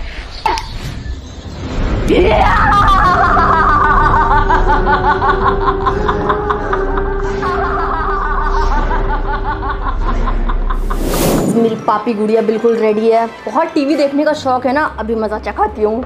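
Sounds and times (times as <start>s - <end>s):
woman laughing theatrically: 2.3s - 10.9s.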